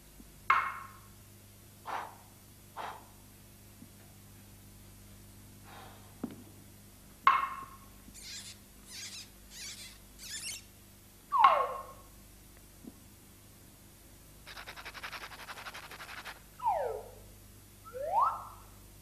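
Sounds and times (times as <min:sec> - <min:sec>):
rasping shakes: 0:14.5 - 0:16.4.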